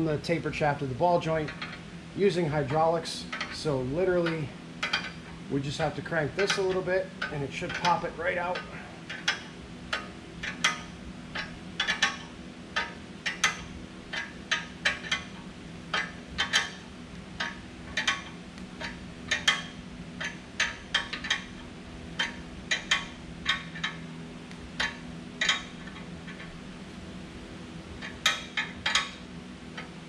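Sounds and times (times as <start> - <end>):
steady low hum: 0.0 - 30.0
ratchet wrench clicking: 3.3 - 5.2, 6.4 - 16.8, 17.4 - 21.6, 22.2 - 24.0, 24.8 - 26.5, 28.0 - 29.2.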